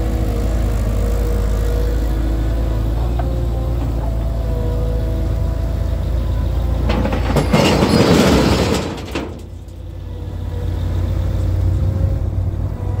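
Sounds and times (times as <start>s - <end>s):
loader engine running: 0.0s - 13.0s
debris clattering into metal skip: 6.7s - 9.8s.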